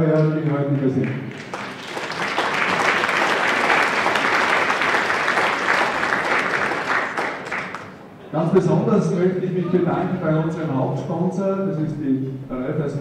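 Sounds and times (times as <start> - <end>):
audience applauding: 0.2 - 8.1.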